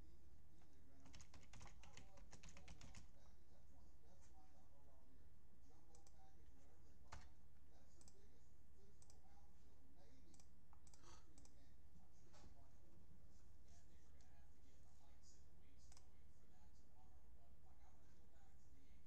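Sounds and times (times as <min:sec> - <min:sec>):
keyboard clicks: 0:01.0 - 0:03.1
computer mouse clicks: 0:05.9 - 0:06.2, 0:08.0 - 0:08.2, 0:09.0 - 0:09.2, 0:10.3 - 0:11.6, 0:15.9 - 0:16.1.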